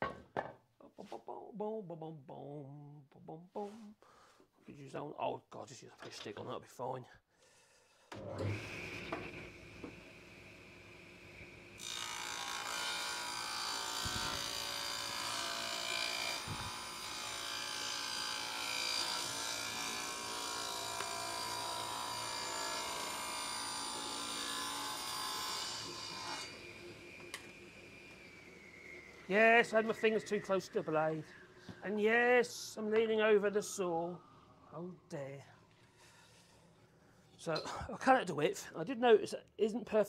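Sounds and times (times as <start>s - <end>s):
table saw cutting board: 8.2s - 30.8s
table saw whining: 8.2s - 31.9s.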